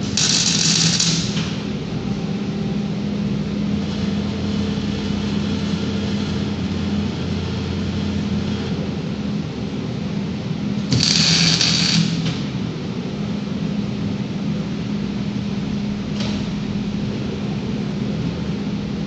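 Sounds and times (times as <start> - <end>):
welding arc hissing: 0.0 - 1.7, 10.8 - 12.5
welding robot humming: 0.0 - 1.8, 2.8 - 9.2, 10.8 - 12.5.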